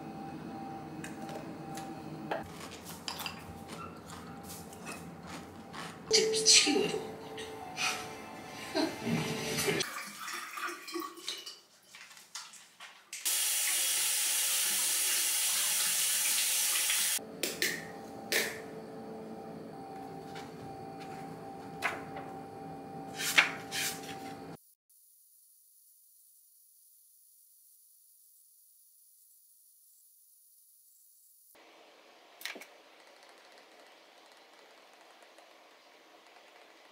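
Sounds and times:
faucet running into sink: 0:13.3 - 0:17.2.

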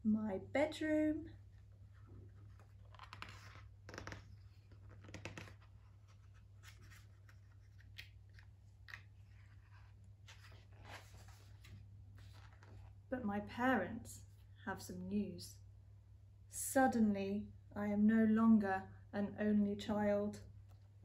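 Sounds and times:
low steady hum: 0:00.0 - 0:21.0
paper rustling: 0:01.8 - 0:13.0.

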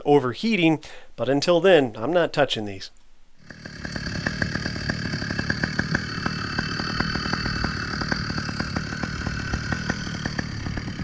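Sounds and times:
two-stroke engine idling: 0:03.4 - 0:11.0.

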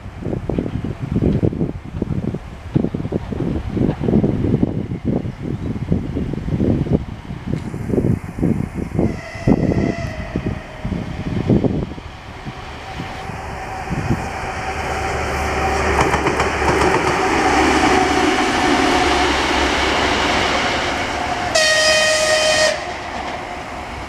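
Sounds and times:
diesel locomotive passing: 0:00.0 - 0:24.0
locomotive horn blast: 0:09.0 - 0:11.1, 0:21.4 - 0:23.2.

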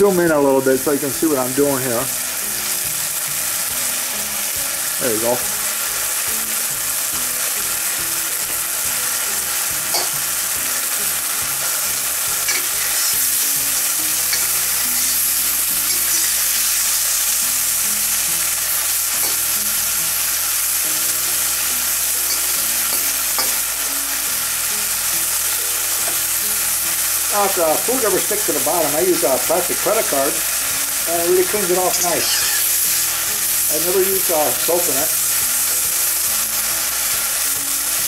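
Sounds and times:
food sizzling in a wok: 0:00.0 - 0:38.0.

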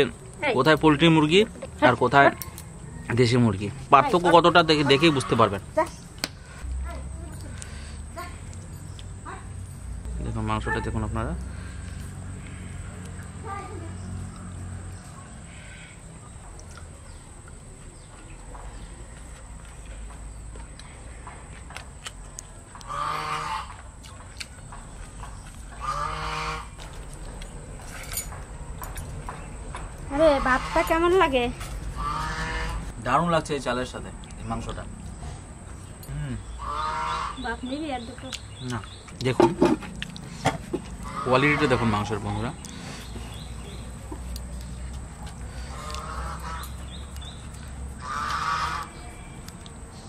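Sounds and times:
farm animal calling: 0:04.0 - 0:06.0, 0:22.8 - 0:23.8, 0:25.7 - 0:27.0, 0:30.0 - 0:32.9, 0:36.1 - 0:39.0, 0:40.8 - 0:43.9, 0:45.5 - 0:49.5.

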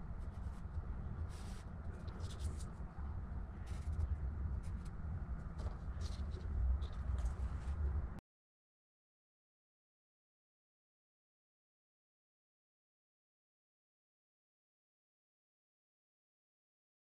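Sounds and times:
marker scratching on paper: 0:01.3 - 0:02.8, 0:03.7 - 0:04.9.

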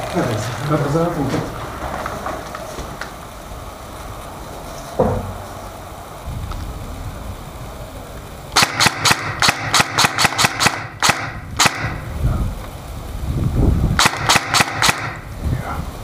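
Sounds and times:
airsoft gun shots: 0:08.6 - 0:12.1, 0:14.0 - 0:15.3.

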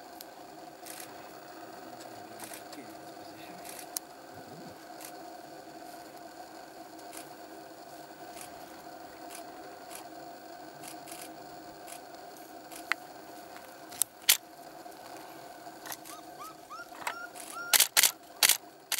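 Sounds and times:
background hum: 0:00.0 - 0:18.9
short rising chirps: 0:16.0 - 0:17.9
camera shutter clicking: 0:17.4 - 0:18.6.

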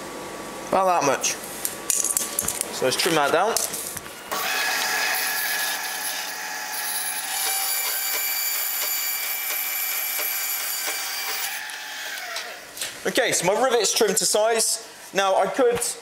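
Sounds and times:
power tool motor whine: 0:04.3 - 0:12.6.

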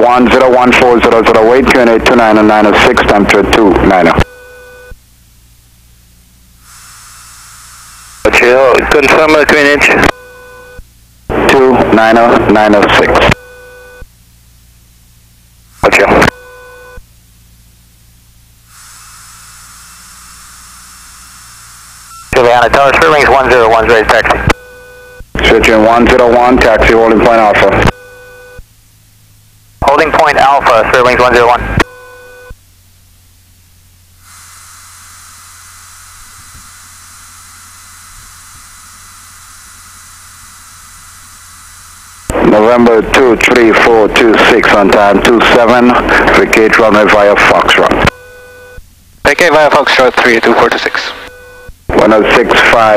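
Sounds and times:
radio low hum: 0:00.0 - 0:52.9
radio channel hiss: 0:00.1 - 0:04.3, 0:06.6 - 0:10.1, 0:11.3 - 0:13.4, 0:15.6 - 0:16.5, 0:18.6 - 0:24.6, 0:25.4 - 0:27.9, 0:29.8 - 0:31.8, 0:34.2 - 0:48.2, 0:49.2 - 0:52.9
buzzing tone: 0:05.7 - 0:11.4, 0:13.2 - 0:29.1, 0:33.6 - 0:43.9.

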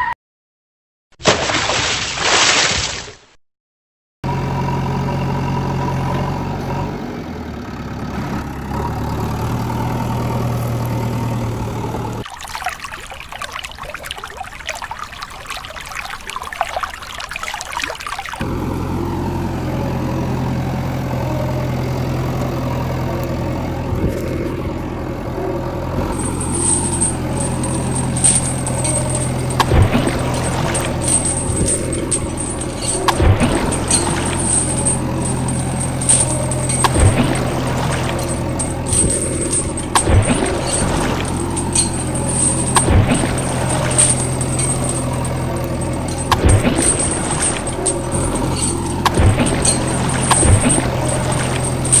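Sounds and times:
rushing water: 0:01.2 - 0:03.2, 0:12.2 - 0:18.4, 0:26.1 - 0:52.0
engine idling: 0:04.2 - 0:12.2, 0:18.4 - 0:52.0.

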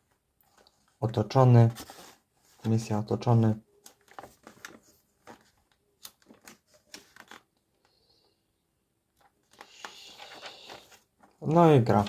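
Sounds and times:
magazine pages turning: 0:01.6 - 0:02.8, 0:03.7 - 0:07.6, 0:09.2 - 0:12.0.

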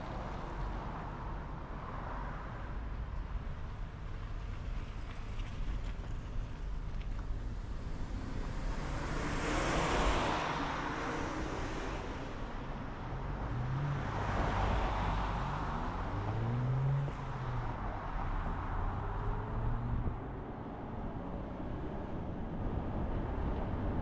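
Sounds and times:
vehicles passing: 0:00.0 - 0:24.0
low engine hum: 0:02.9 - 0:24.0.

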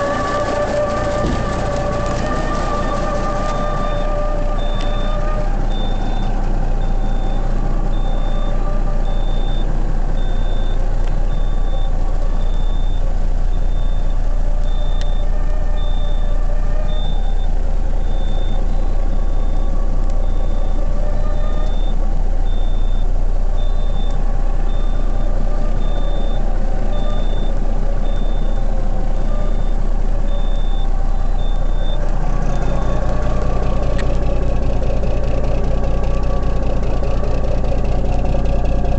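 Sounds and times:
diesel engine idling: 0:00.0 - 0:38.9
high warning beep: 0:03.5 - 0:16.3, 0:16.9 - 0:32.1.

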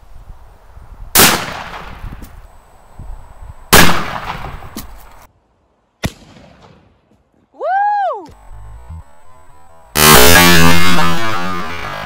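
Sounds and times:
shotgun blasts with echo: 0:01.2 - 0:02.0, 0:03.7 - 0:04.9, 0:06.0 - 0:06.9.

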